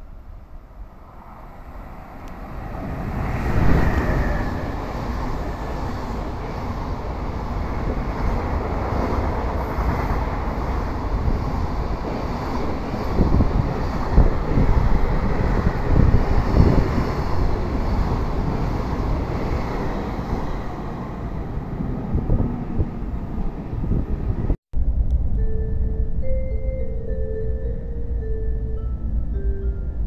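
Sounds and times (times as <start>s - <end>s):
freight wagons rumbling on rails: 2.3s - 26.0s.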